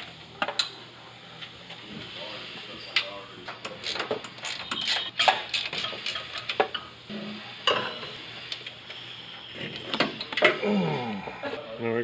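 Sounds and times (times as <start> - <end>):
ratchet wrench clicking: 3.8 - 6.4.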